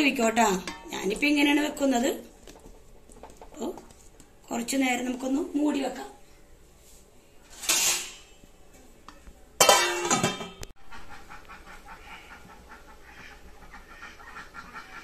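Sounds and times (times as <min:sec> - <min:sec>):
metal lid clattering on pan: 0:09.6 - 0:10.6.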